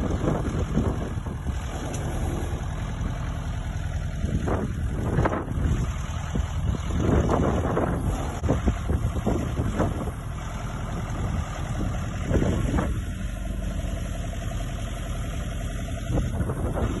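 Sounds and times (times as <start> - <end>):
tractor engine running: 0.0 - 17.0.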